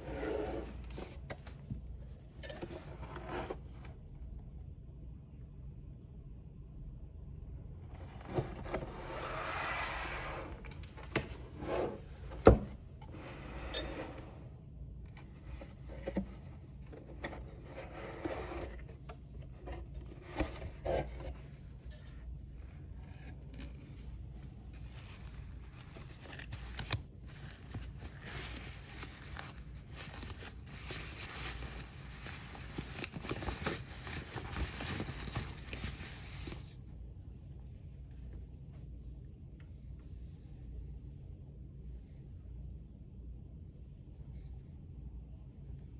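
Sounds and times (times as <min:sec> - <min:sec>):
cardboard rubbing and scraping: 0:00.0 - 0:01.2, 0:02.9 - 0:03.9, 0:08.0 - 0:13.5, 0:15.4 - 0:21.6, 0:24.7 - 0:36.8
tissue paper rustling: 0:24.7 - 0:36.8.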